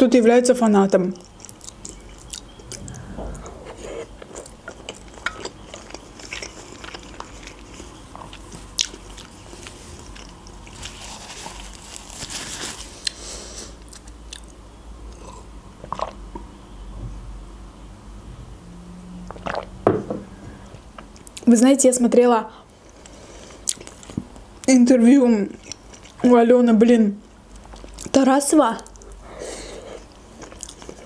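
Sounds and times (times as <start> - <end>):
chewing food with mouth clicks: 0.9 - 11.7, 13.8 - 16.5, 22.9 - 24.5, 25.5 - 26.3, 27.2 - 28.2, 29.9 - 31.0.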